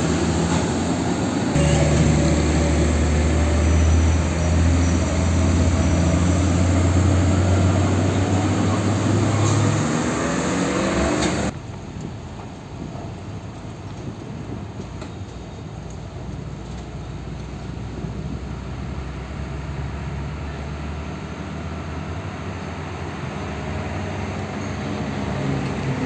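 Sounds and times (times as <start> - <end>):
truck diesel engine driving past: 0.0 - 11.5
tyre and road noise: 0.0 - 26.0.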